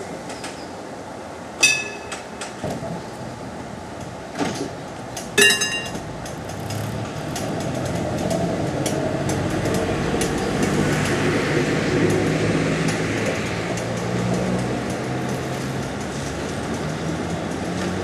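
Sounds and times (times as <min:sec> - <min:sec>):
tram wheels and motors rumbling: 0:00.0 - 0:18.0
short metallic ring: 0:01.6 - 0:02.2, 0:05.4 - 0:06.0.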